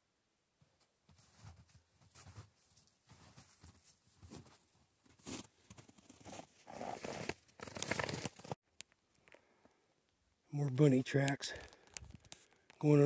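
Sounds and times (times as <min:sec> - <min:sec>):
footsteps crunching through snow: 0:01.1 - 0:08.6.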